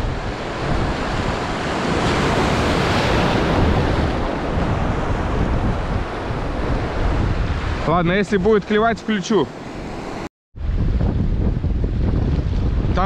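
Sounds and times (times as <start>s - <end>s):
wind buffeting microphone: 0.0s - 9.0s, 9.6s - 13.0s
ocean surf washing ashore: 0.0s - 13.0s.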